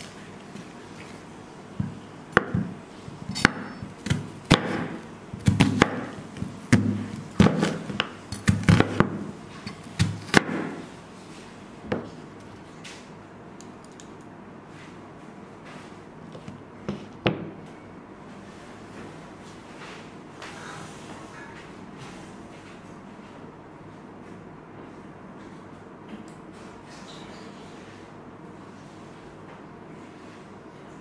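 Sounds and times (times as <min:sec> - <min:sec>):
knife chopping onion on board: 0:01.8 - 0:10.8.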